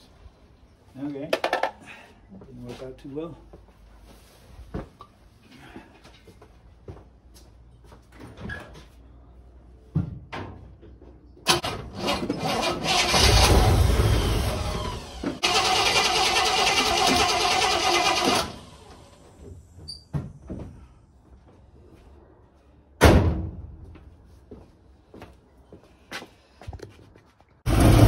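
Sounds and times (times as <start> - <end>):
car engine cranking and running: 11.5 - 19.7, 27.7 - 28.0.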